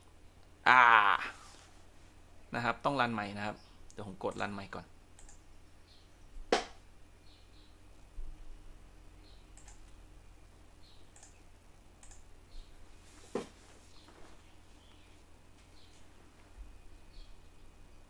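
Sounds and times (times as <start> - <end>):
sharp computer clicks: 3.9 - 5.5, 9.4 - 10.0, 10.9 - 12.6.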